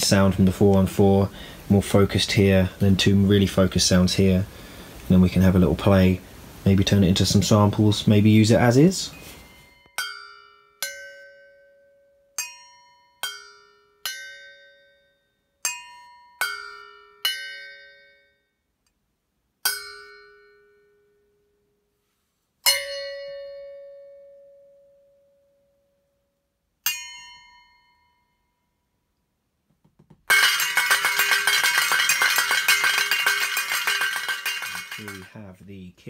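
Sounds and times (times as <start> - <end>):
drumsticks striking metal bowls: 30.3 - 35.3.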